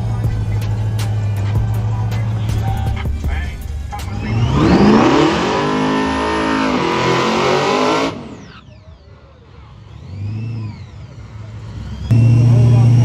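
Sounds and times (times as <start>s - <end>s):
race car engine at full throttle: 0.0s - 13.0s
faint whines: 8.1s - 13.0s.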